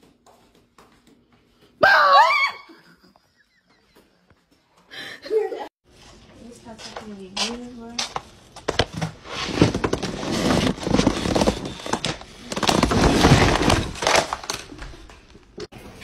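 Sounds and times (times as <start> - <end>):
clattering and scuffling: 5.9 - 16.0.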